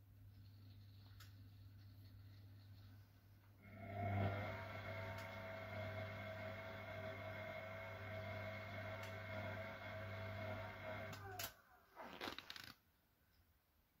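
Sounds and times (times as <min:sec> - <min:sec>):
washing machine humming: 0:03.6 - 0:11.4.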